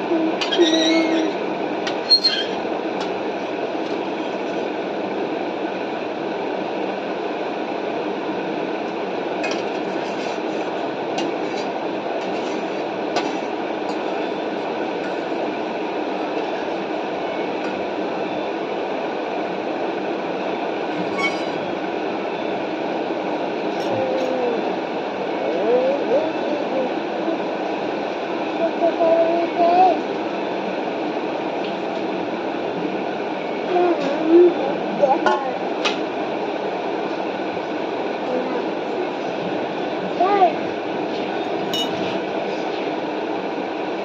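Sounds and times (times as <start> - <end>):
fork clinking on steel plate: 41.8 - 42.1.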